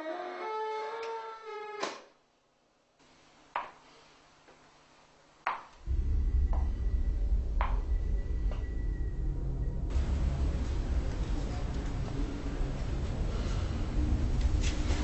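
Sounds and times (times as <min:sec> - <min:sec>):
loud low rumbling drone: 0:05.8 - 0:15.0.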